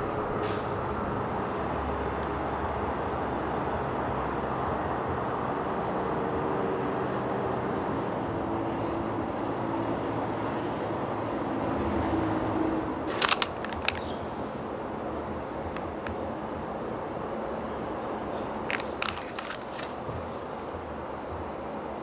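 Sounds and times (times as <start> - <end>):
urban background rumble: 0.0 - 22.0.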